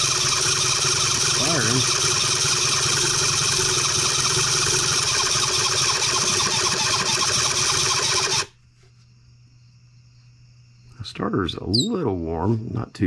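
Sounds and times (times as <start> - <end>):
electric starter cranking engine: 0.0 - 8.6.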